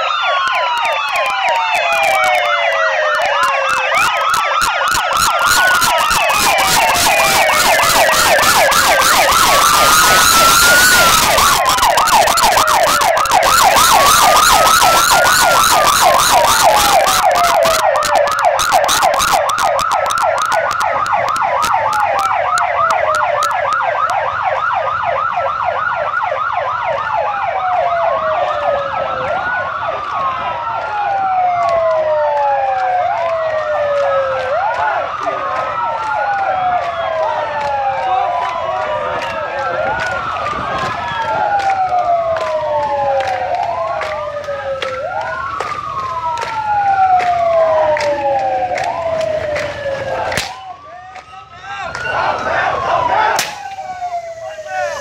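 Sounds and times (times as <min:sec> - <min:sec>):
police sirens wailing: 0:00.0 - 0:55.0
siren yelp: 0:00.0 - 0:55.0
rushing noise: 0:04.9 - 0:20.8, 0:52.1 - 0:55.0.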